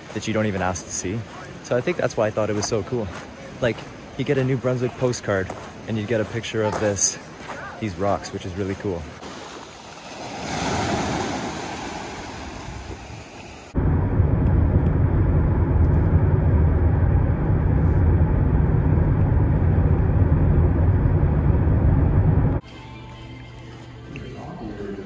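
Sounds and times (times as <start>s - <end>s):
wind and surf: 0.0s - 22.6s
car driving at speed: 13.8s - 22.6s.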